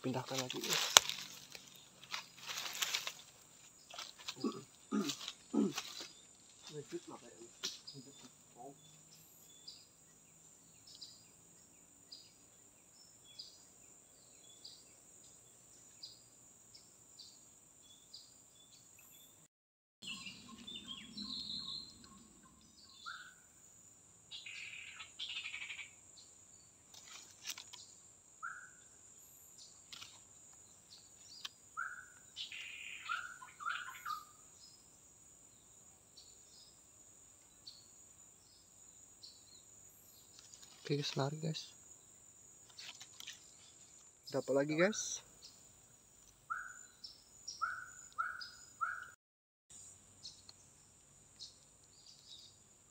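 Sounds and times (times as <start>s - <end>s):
birds chirping and whistling: 20.0s - 23.4s, 31.4s - 34.4s, 46.5s - 49.2s.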